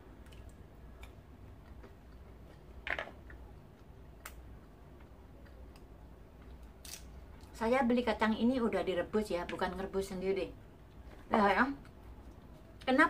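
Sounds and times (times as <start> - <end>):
peanut shells cracking: 6.5 - 7.6.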